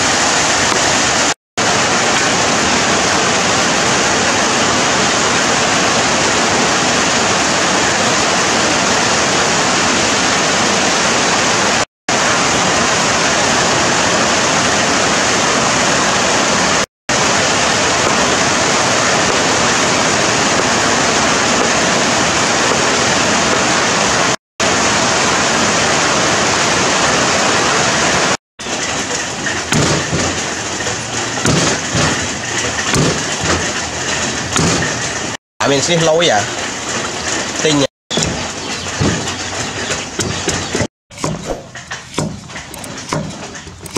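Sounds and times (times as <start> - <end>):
heavy rain on leaves and roof: 0.0 - 39.0
cleaver knocking on chopping board: 31.4 - 32.1, 43.1 - 43.4.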